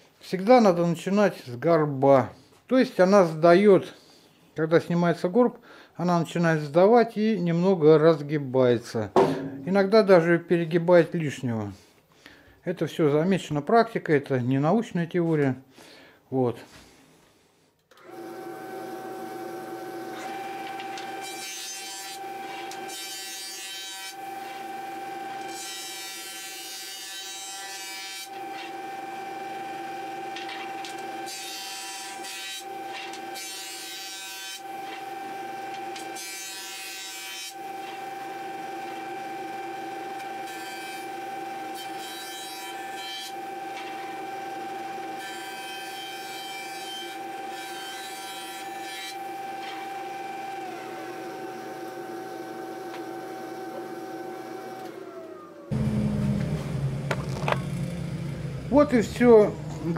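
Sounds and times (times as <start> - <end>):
jointer motor whining: 17.9 - 23.5, 24.1 - 26.6, 28.2 - 33.4, 34.6 - 36.2, 37.6 - 42.0, 42.8 - 45.5, 48.7 - 59.9
wooden board being planed: 18.1 - 28.9, 45.2 - 54.0, 55.7 - 58.0.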